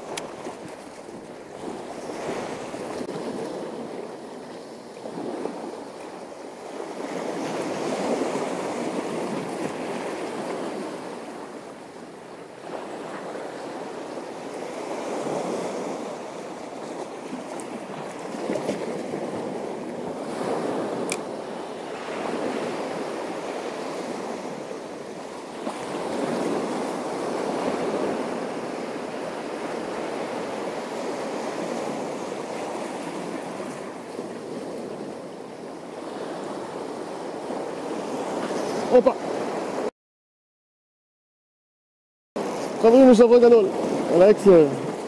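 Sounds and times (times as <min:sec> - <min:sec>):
sea waves washing in: 0:00.0 - 0:39.9, 0:42.4 - 0:45.0
sharp click: 0:21.0 - 0:21.3.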